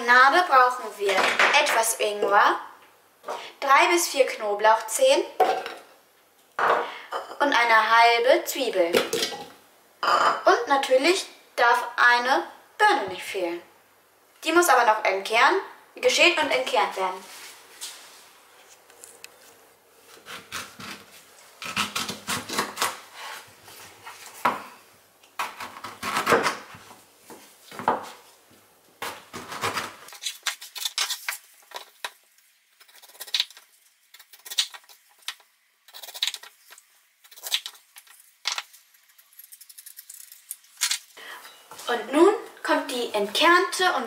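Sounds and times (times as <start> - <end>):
knife slicing fruit: 20.1 - 23.4, 25.4 - 26.8.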